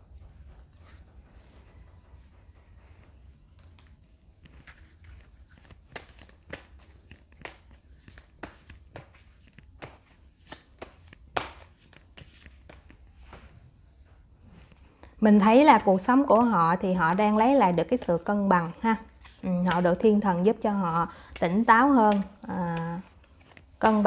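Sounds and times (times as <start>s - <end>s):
cards tapping on table: 5.9s - 13.5s.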